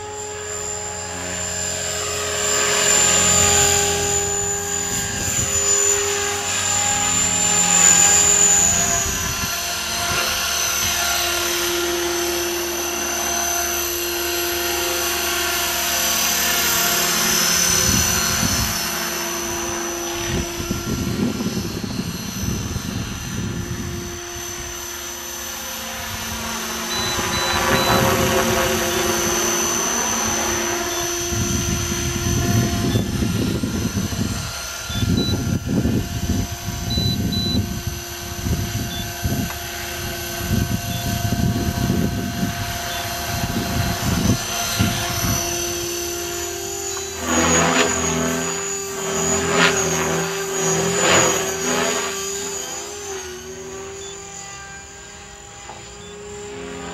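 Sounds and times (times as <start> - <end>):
rc helicopter motor whine: 0.0 - 56.9
rotor blades swishing: 0.0 - 56.9.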